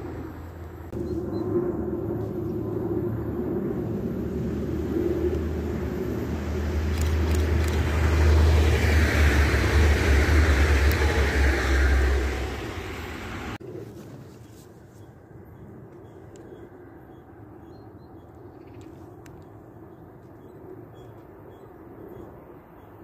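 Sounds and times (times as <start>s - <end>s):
train passing on rails: 0.0s - 13.6s
quiet outdoor background: 0.0s - 23.0s.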